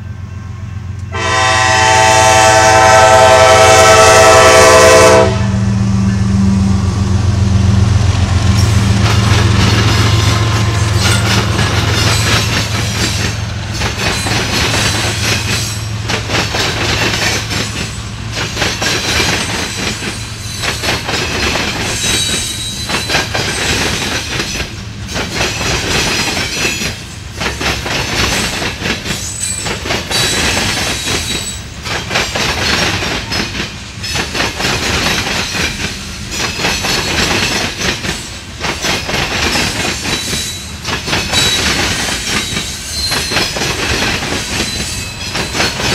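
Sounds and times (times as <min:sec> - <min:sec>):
diesel locomotive engine drone: 0:00.0 - 0:45.9
railcars clattering over rail crossings: 0:00.0 - 0:45.9
wheel squeal: 0:42.3 - 0:43.6.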